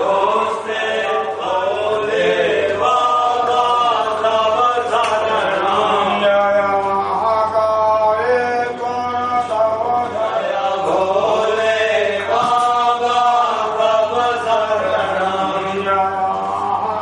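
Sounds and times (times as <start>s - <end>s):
voices chanting: 0.0s - 17.0s.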